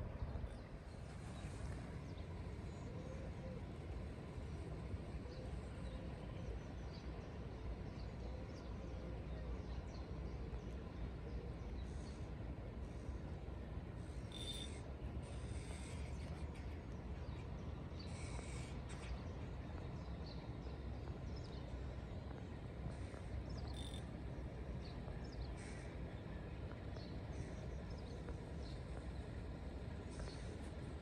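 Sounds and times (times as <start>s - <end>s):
low background rumble: 0.0s - 31.0s
birds calling: 24.8s - 31.0s.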